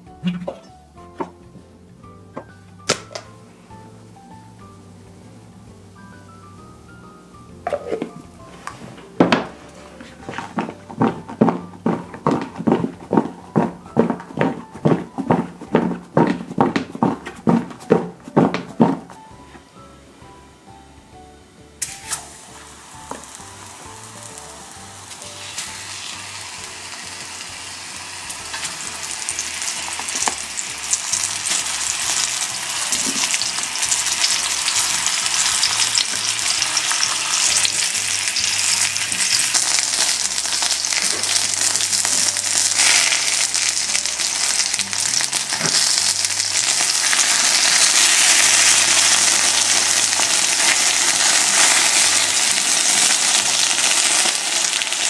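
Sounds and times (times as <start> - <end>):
mushrooms sizzling in oil: 21.6 - 55.0.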